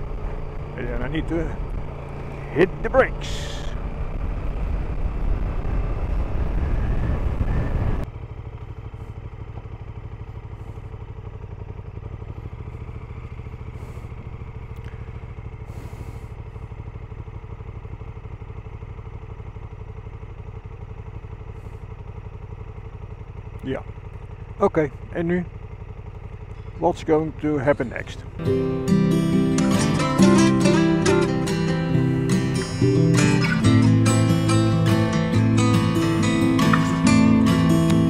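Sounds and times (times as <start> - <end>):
wind and road noise: 0.0 - 28.5
motorcycle engine: 0.0 - 38.0
motorcycle engine idling: 0.0 - 38.0.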